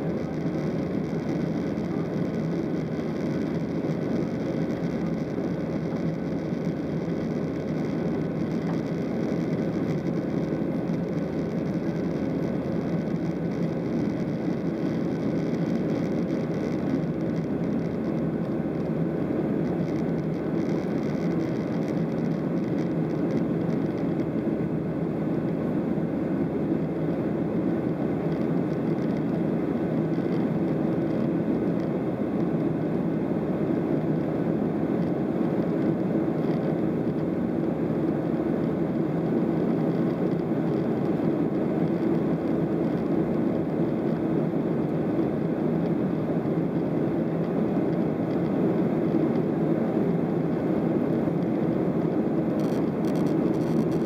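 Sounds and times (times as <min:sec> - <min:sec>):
airplane cabin engine noise: 0:00.0 - 0:54.0
faint steady hum: 0:00.0 - 0:54.0.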